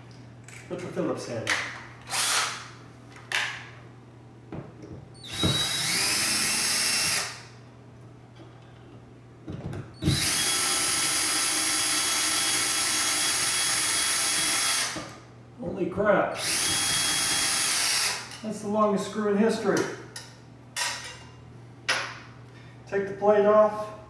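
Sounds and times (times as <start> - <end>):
cordless drill whining: 2.1 - 2.6, 5.2 - 7.4, 10.0 - 15.0, 16.4 - 18.3.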